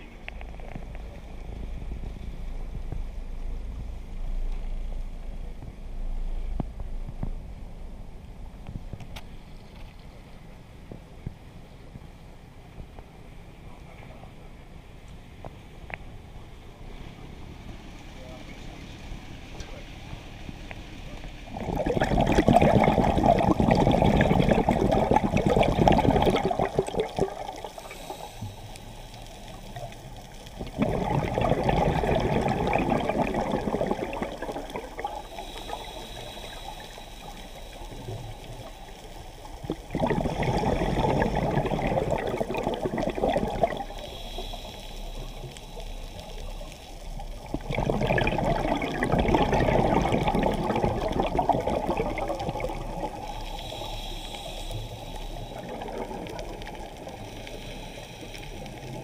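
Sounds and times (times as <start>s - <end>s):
exhaled bubbles underwater: 21.5s - 59.0s
regulator inhalation hiss: 27.5s - 29.8s, 35.1s - 39.5s, 43.7s - 47.0s, 53.1s - 59.0s.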